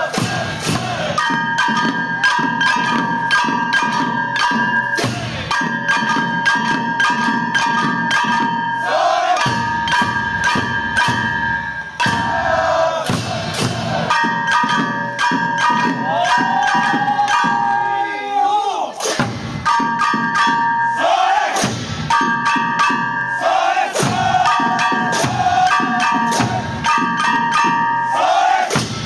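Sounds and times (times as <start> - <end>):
small hand drums beaten: 0.0 - 18.0, 19.0 - 29.0
chanted calls: 0.8 - 18.8, 19.6 - 28.8
hand gongs ringing: 1.2 - 12.8, 14.1 - 18.1, 19.5 - 21.4, 22.0 - 28.6.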